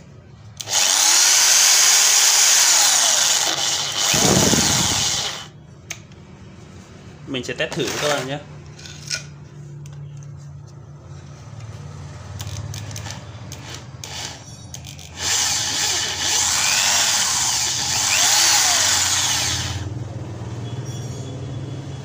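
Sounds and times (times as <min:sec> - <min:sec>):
hammer drill boring into wood: 0:00.6 - 0:05.5, 0:13.6 - 0:19.9
drill clicks: 0:00.6 - 0:06.0, 0:12.4 - 0:19.8.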